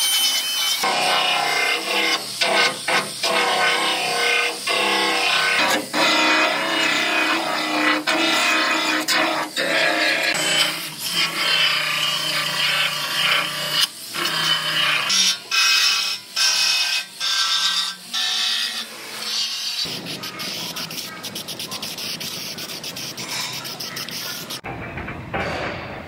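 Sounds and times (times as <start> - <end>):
belt sander grinding steel: 0.0 - 24.7
aerosol can spraying: 19.8 - 24.6.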